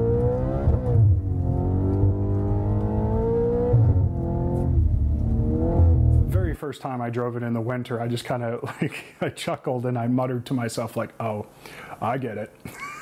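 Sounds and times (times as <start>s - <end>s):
car engine accelerating: 0.0s - 6.5s.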